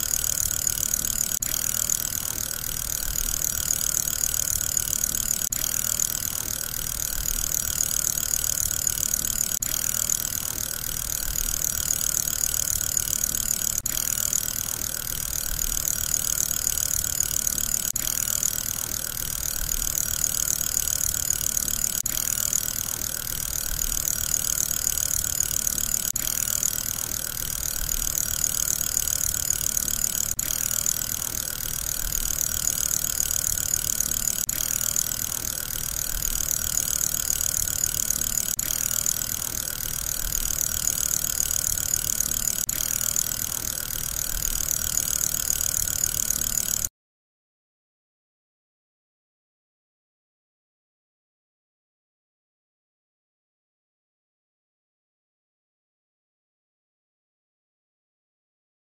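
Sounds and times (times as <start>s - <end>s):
fidget spinner whirring: 0.0s - 46.9s.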